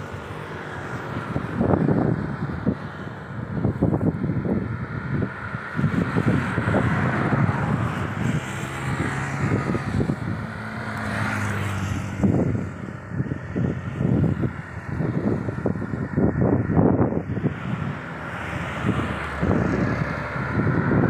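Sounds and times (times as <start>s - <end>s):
car passing: 0.0s - 21.0s
steady engine hum: 0.0s - 21.0s
wind buffeting microphone: 0.0s - 21.0s.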